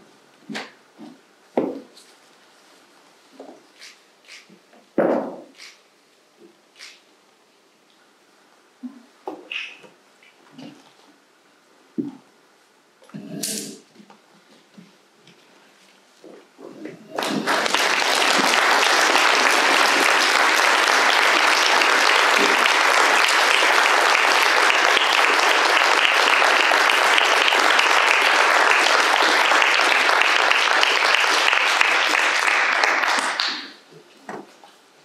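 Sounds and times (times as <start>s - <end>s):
crowd applause: 17.1s - 33.8s.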